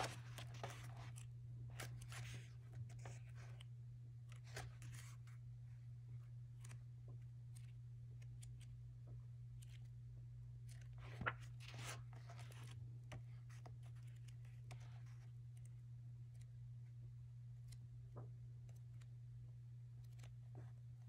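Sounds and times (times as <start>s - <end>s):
paper rustle: 0.0s - 3.7s, 4.3s - 5.4s, 10.7s - 15.2s
book pages turning: 0.0s - 5.4s, 6.6s - 6.8s, 7.5s - 8.7s, 9.6s - 9.9s, 10.6s - 15.7s, 20.0s - 20.7s
steady low hum: 0.0s - 21.0s.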